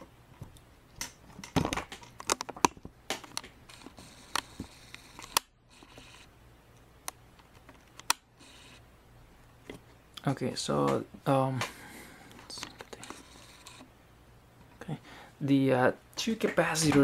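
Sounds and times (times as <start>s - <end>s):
handling clicks and rustles: 0.0s - 5.5s.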